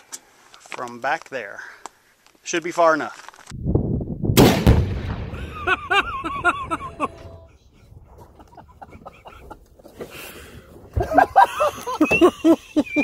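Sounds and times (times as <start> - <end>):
explosion rumbling and echoing: 3.8 - 6.0.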